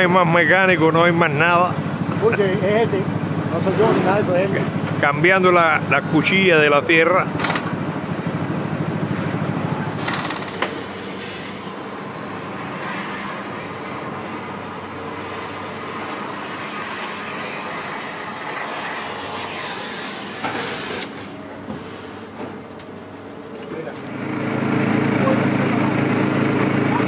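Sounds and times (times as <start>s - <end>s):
heavy machinery din: 0.0s - 15.6s.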